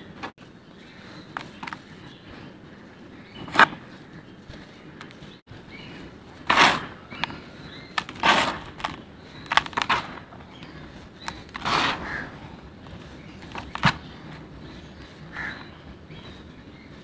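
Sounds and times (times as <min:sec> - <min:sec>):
dry dirt crumbling by hand: 0:03.3 - 0:16.3.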